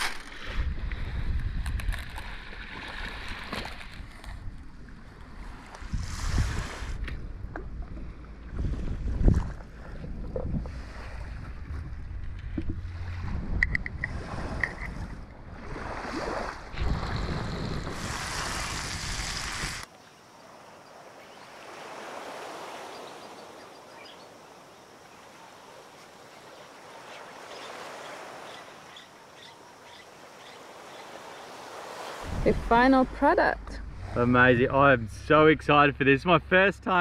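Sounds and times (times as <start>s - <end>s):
wind buffeting microphone: 0.4s - 2.1s, 5.8s - 19.8s, 32.2s - 35.6s
waves washing on shore: 5.2s - 7.1s, 12.8s - 19.9s, 20.5s - 35.2s.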